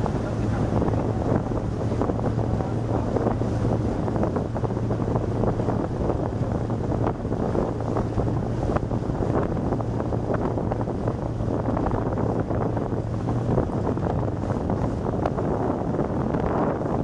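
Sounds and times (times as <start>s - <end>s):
boat engine droning: 0.0s - 17.0s
wind buffeting microphone: 0.0s - 17.0s.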